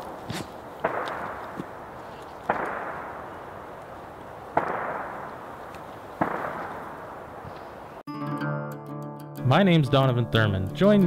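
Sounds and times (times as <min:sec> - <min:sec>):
distant gunshots with echo: 0:00.8 - 0:03.8, 0:04.4 - 0:07.5.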